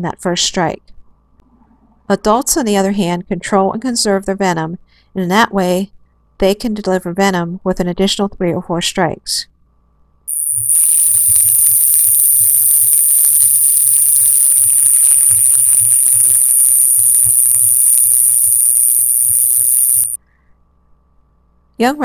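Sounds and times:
rattlesnake rattle buzzing: 10.3 - 20.2.

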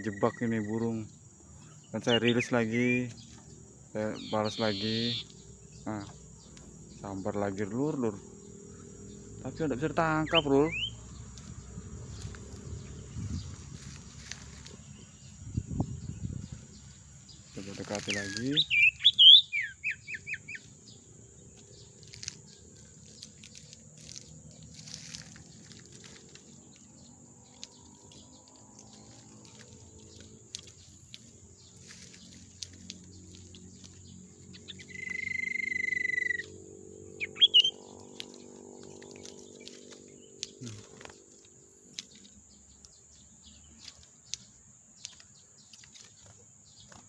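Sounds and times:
bird chirp: 0.0 - 47.0
bird whistle: 10.3 - 11.0, 18.1 - 20.6, 34.5 - 36.5, 37.2 - 37.8.

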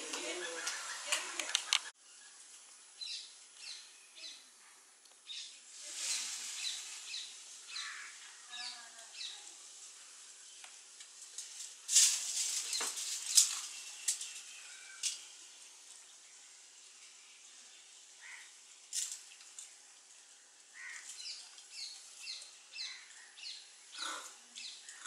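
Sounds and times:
small birds chirping: 0.0 - 25.0
loud noisy rustle: 5.6 - 10.2, 11.2 - 15.5.

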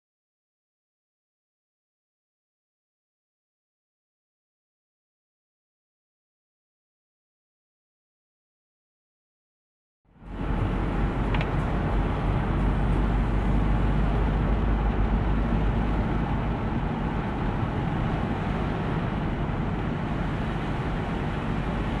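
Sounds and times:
car engine and tyre rumble: 10.1 - 22.0.

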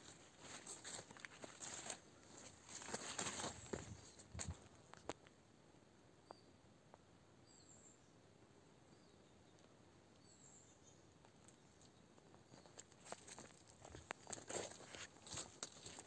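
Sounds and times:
footsteps through undergrowth: 0.0 - 4.8, 12.5 - 16.0
faint outdoor hiss: 0.0 - 16.0.

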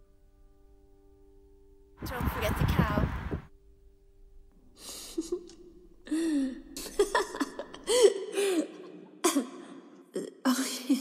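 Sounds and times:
person laughing and chuckling: 5.0 - 5.7, 6.5 - 9.4.

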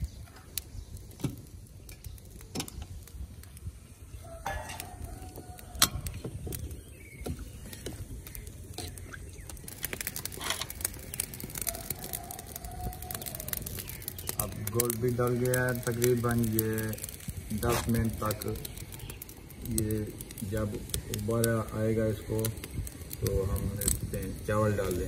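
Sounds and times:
ladle scraping metal pot: 10.3 - 10.8.

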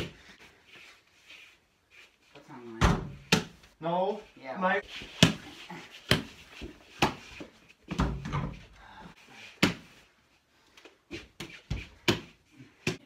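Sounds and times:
ball hitting backboard and rim: 7.9 - 8.6.

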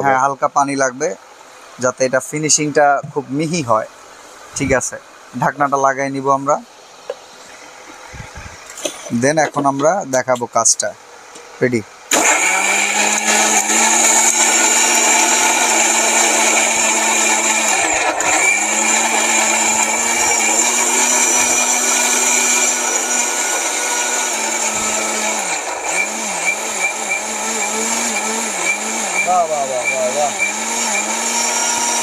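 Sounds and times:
mixer grinder grinding: 12.1 - 32.0.

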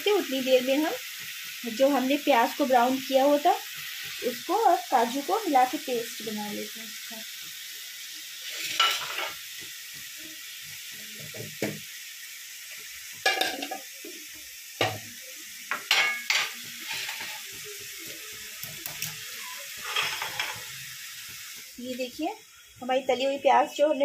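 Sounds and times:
masala sizzling in a pan: 0.0 - 24.0
wooden spatula scraping a pan: 8.4 - 9.4, 16.5 - 17.6, 19.8 - 20.7.

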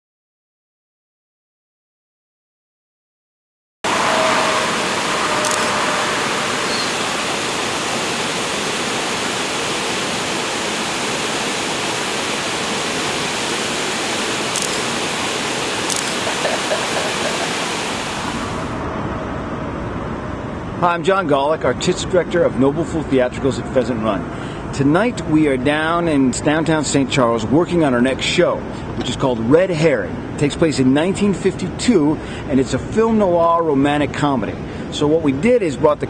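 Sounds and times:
river water rushing: 3.9 - 18.8.

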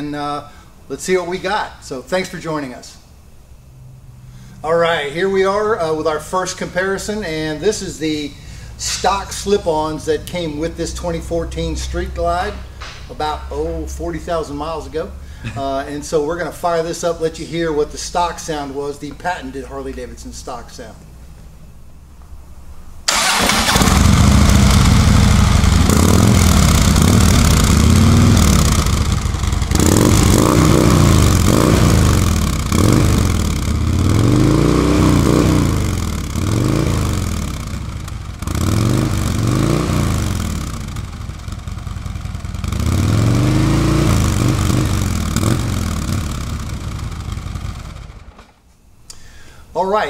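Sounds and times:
motorcycle engine idling and revving: 23.1 - 48.4.

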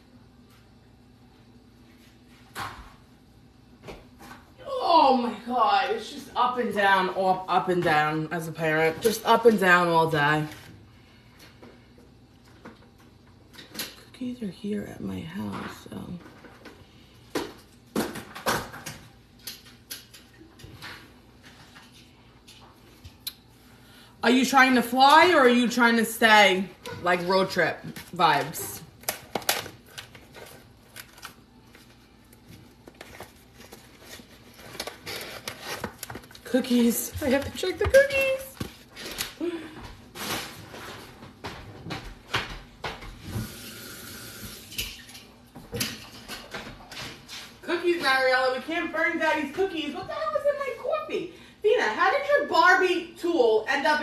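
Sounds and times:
kitchen knocks and clatters: 15.5 - 23.2, 32.8 - 43.6, 44.7 - 48.2.

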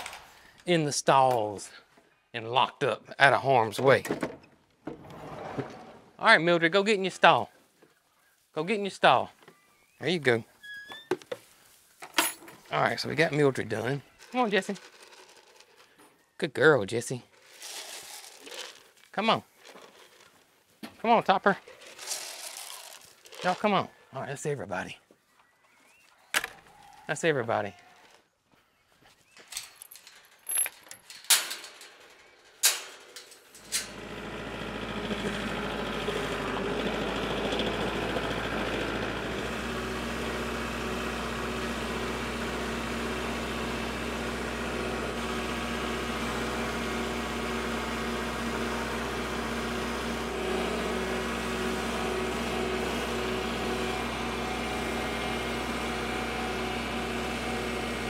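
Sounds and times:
tractor diesel engine running: 33.5 - 58.0.

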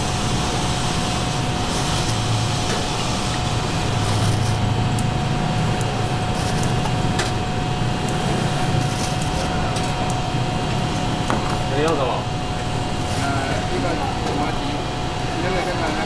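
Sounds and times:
mechanical hum: 0.0 - 16.0.

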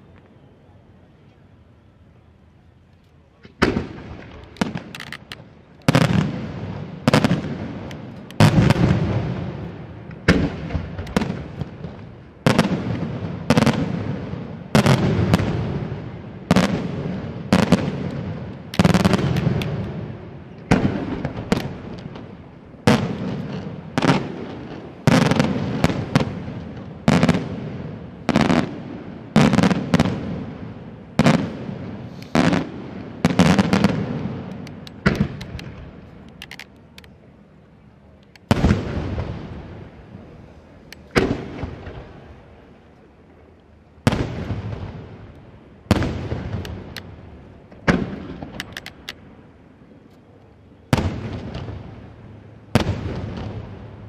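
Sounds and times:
firework shells bursting: 32.1 - 37.2.

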